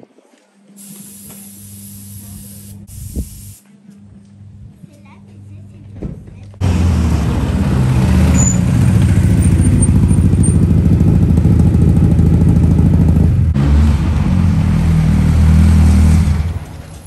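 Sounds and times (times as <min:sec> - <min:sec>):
car engines at low revs: 0:06.6 - 0:17.0.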